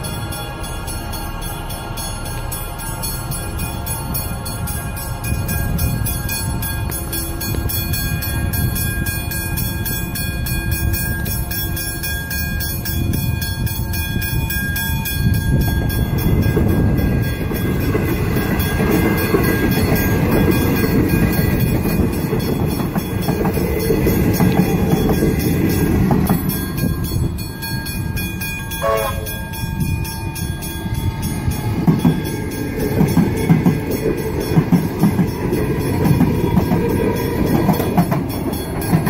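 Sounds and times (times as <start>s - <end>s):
electric train passing: 0.0s - 39.0s
level-crossing warning bells: 0.0s - 39.0s.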